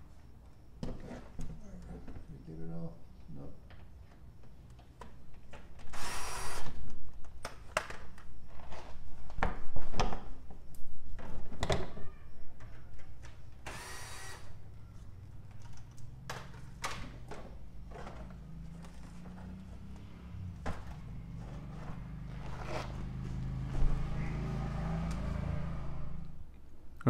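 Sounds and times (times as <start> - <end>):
cordless drill whining: 5.9 - 6.8, 13.6 - 14.6
knocks and plastic rattles: 15.4 - 21.9.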